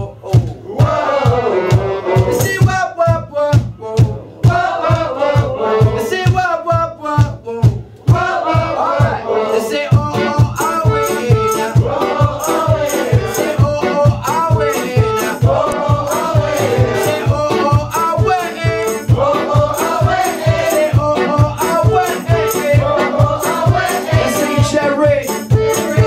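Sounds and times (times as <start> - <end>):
acoustic guitar: 0.0 - 26.0
cajon beat: 0.0 - 26.0
melodica: 8.5 - 26.0
bass guitar: 9.9 - 26.0
shaker-like percussion rattling: 10.1 - 26.0.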